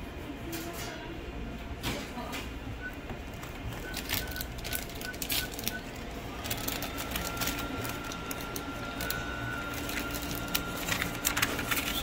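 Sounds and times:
paper wrapper crinkling: 0:03.4 - 0:12.0.

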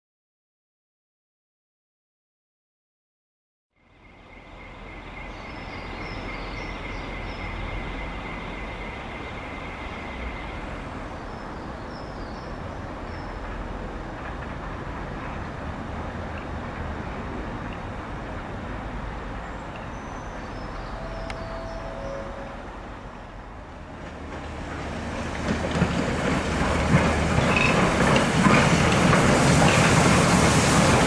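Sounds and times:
steam locomotive rumble: 0:03.8 - 0:31.0
high squeal: 0:20.4 - 0:23.4
short high chirps: 0:20.7 - 0:22.8.

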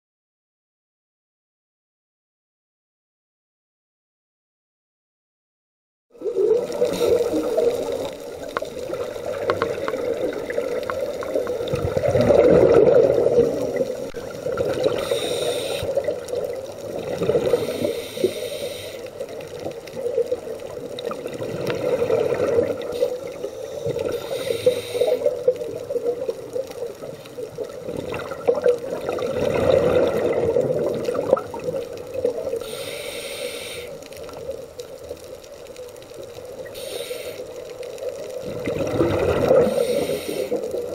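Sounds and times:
exhaled air bubbling: 0:06.2 - 0:40.9
regulator inhale hiss: 0:06.8 - 0:08.1, 0:14.8 - 0:16.2, 0:17.4 - 0:19.4, 0:22.8 - 0:25.6, 0:32.5 - 0:34.2, 0:36.6 - 0:37.9, 0:39.5 - 0:40.9.

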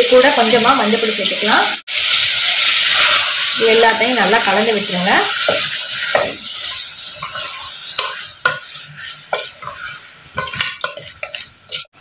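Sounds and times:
sizzling hiss: 0:00.0 - 0:12.0
wooden spatula knocking metal pot: 0:05.5 - 0:06.4, 0:10.4 - 0:11.8.

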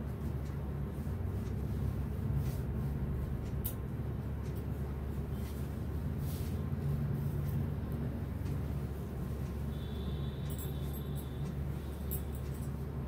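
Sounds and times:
steady low hum: 0:00.0 - 0:13.0
fabric rustling: 0:05.4 - 0:07.5.

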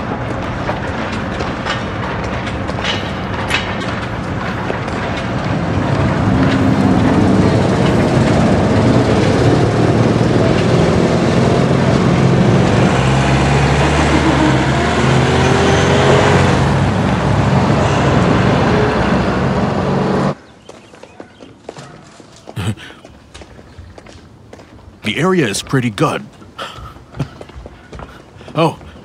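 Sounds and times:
vehicle engine running: 0:00.0 - 0:20.4
road noise: 0:00.0 - 0:21.6, 0:22.4 - 0:29.0.

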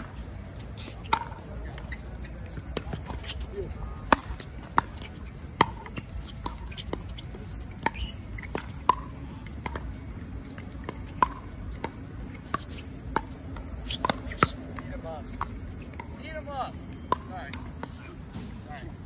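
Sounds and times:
ball bouncing on hard court: 0:04.0 - 0:10.0, 0:10.6 - 0:16.2.

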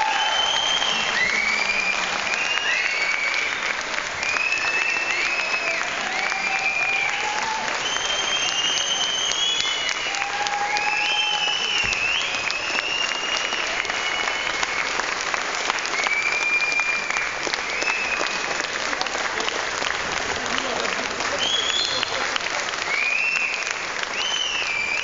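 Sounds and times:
long high whistles: 0:00.0 - 0:15.1, 0:15.8 - 0:18.6, 0:22.9 - 0:25.0
audience applauding: 0:00.0 - 0:25.0
calls from audience: 0:00.0 - 0:25.0.

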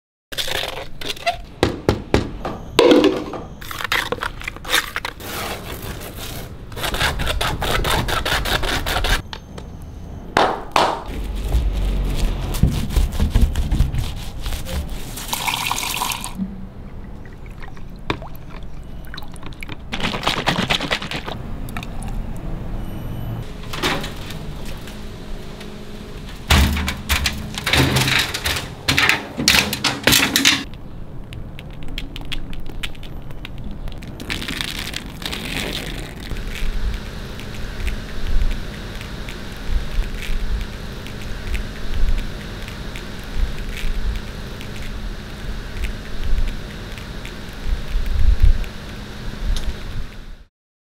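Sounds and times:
scrapes and wet slaps: 0:19.9 - 0:21.4.

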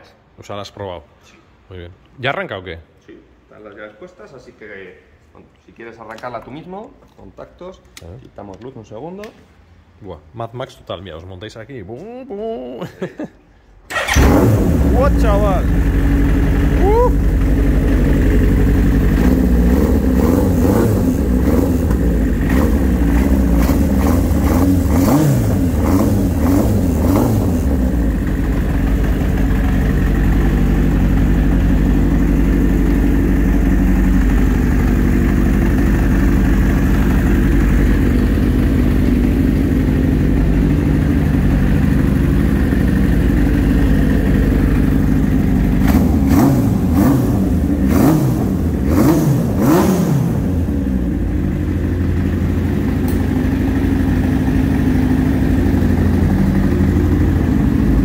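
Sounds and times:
motorcycle engine revving and idling: 0:13.9 - 0:58.0.

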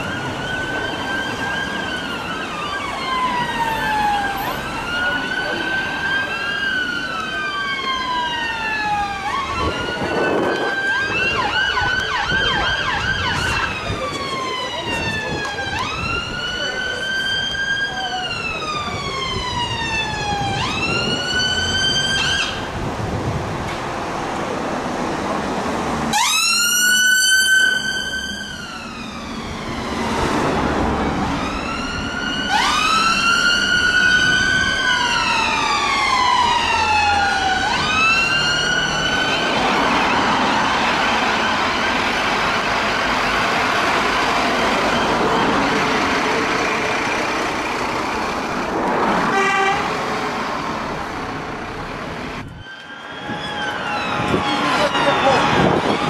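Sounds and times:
rapid siren yelp: 0:00.0 - 0:22.6, 0:26.1 - 0:42.3, 0:52.4 - 0:56.0
ambulance sirens wailing: 0:00.0 - 0:56.0.

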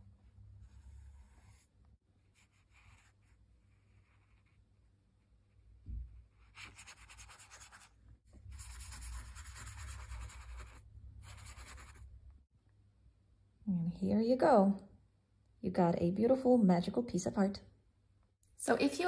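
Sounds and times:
wet paintbrush scrubbing paper: 0:00.6 - 0:04.9, 0:06.3 - 0:12.1.

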